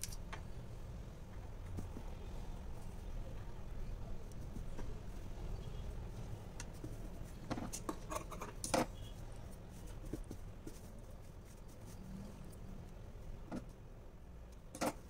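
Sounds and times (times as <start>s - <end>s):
fabric rustling with clicks and taps: 4.0s - 13.8s.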